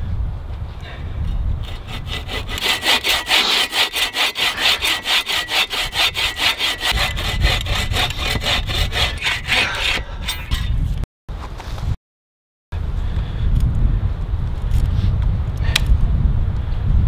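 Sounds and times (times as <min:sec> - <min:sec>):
bow saw cutting wood: 0:01.6 - 0:10.9.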